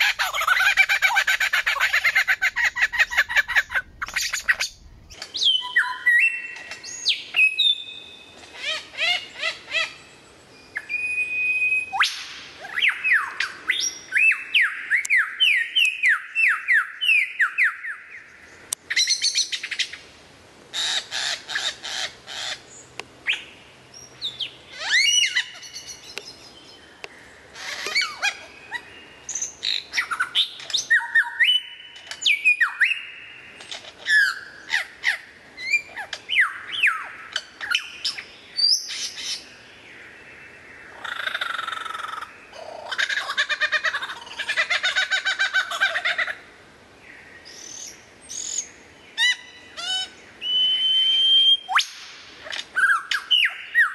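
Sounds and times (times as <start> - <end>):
lyrebird singing mimicked calls: 0.0 - 6.1.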